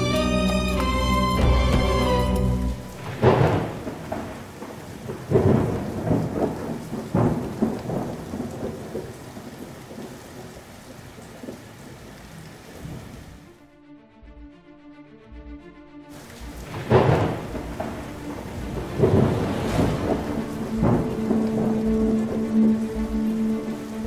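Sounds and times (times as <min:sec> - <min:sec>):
heavy rain: 0:00.0 - 0:13.6, 0:16.1 - 0:24.0
thunder claps and rumbles: 0:02.9 - 0:10.8, 0:16.3 - 0:24.0.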